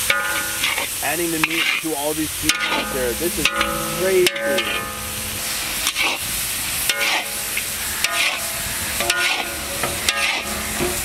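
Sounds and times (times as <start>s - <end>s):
meat sizzling in a wok: 0.0s - 11.0s
metal spatula scraping a wok: 2.5s - 11.0s.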